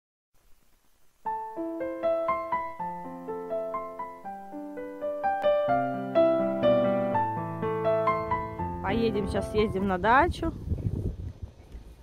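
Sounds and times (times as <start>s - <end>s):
slow piano melody: 1.2s - 10.0s.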